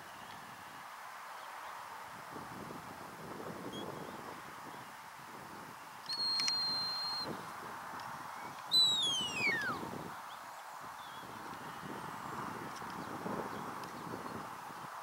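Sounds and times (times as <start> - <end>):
wind hiss: 0.0 - 15.0
high whistle: 6.1 - 7.3, 8.7 - 9.9
whistle sliding down in pitch: 8.7 - 9.8.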